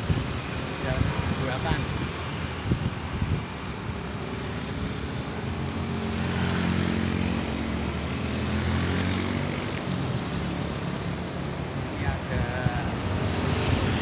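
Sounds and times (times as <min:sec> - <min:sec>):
engine drone passing: 0:04.6 - 0:14.0.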